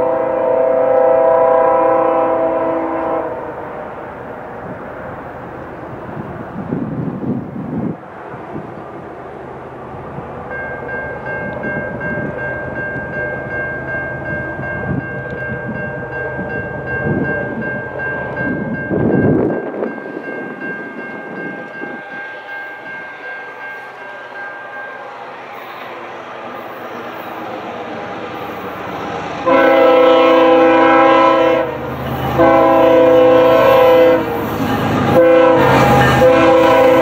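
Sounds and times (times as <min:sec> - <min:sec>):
train horn long note: 0:00.0 - 0:03.7, 0:29.4 - 0:37.0
low uneven train rumble: 0:00.0 - 0:37.0.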